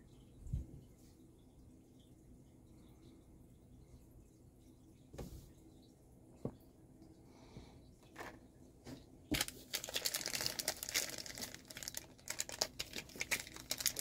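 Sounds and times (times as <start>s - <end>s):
plastic wrapper crinkling and tearing: 9.3s - 14.0s.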